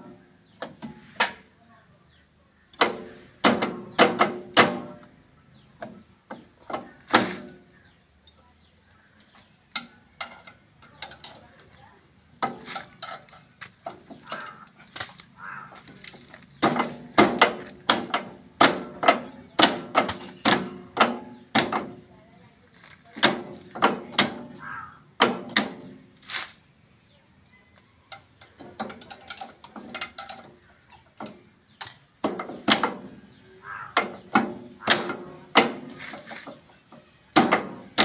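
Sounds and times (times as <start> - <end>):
metallic clanks and knocks: 2.8 - 5.1, 9.7 - 11.6, 12.4 - 14.6, 16.5 - 22.1, 23.2 - 26.0, 28.1 - 38.0.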